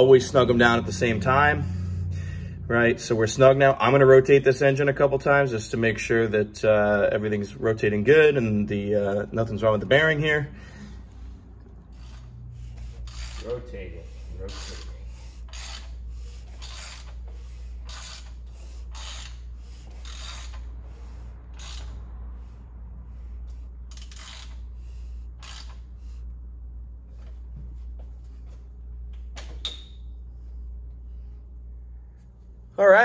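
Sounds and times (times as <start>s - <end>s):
low steady hum: 0.0s - 33.0s.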